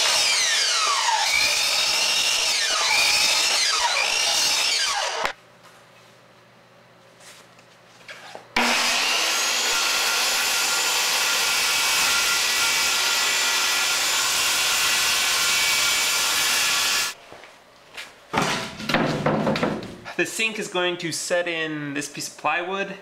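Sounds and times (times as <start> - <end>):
circular saw cutting plywood: 0.0 - 5.4, 8.6 - 17.2.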